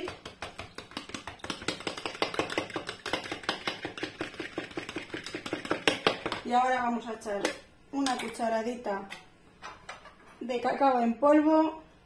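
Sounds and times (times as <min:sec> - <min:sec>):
fork beating batter in bowl: 0:00.0 - 0:06.5.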